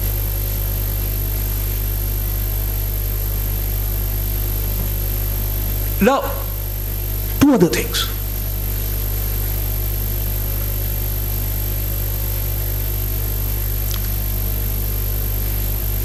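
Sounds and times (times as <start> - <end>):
electrical hum and hiss: 4.8 - 9.2.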